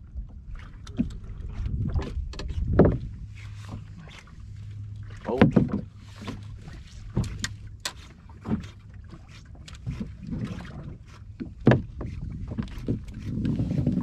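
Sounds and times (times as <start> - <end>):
knocks on a boat: 0.9 - 3.2, 5.2 - 6.4, 7.1 - 8.7, 9.9 - 14.0.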